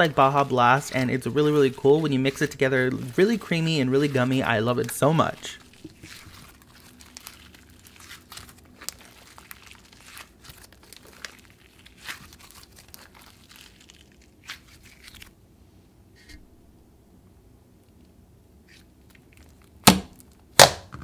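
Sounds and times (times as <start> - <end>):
slime squeezed crackling: 0.0 - 15.4.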